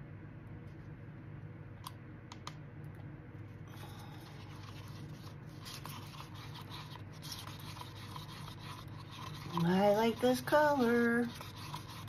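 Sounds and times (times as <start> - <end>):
stir stick scraping paper cup: 3.7 - 12.0.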